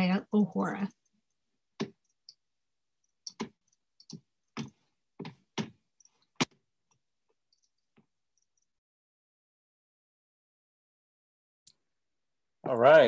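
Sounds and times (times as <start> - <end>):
computer clicks and taps: 0.9 - 2.4, 3.0 - 8.8.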